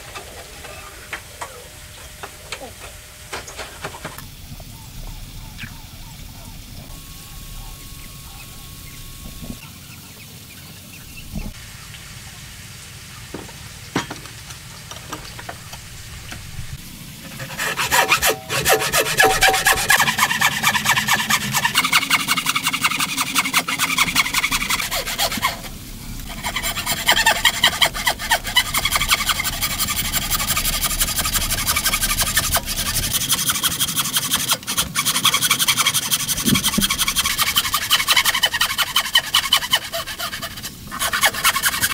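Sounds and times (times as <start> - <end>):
hand saw rasping through wood: 17.2 - 41.9.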